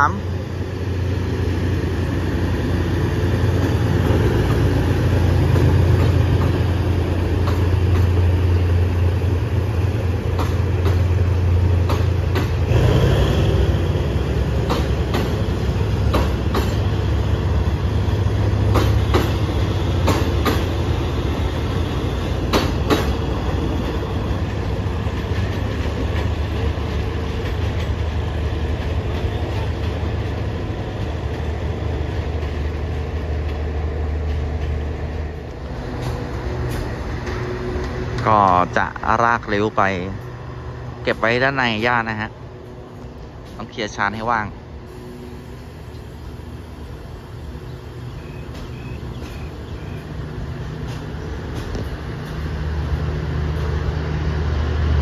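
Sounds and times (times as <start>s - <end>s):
locomotive engine drone: 0.0s - 55.0s
train wheels clacking over rail joints: 3.6s - 8.9s, 10.1s - 38.7s, 48.5s - 53.8s.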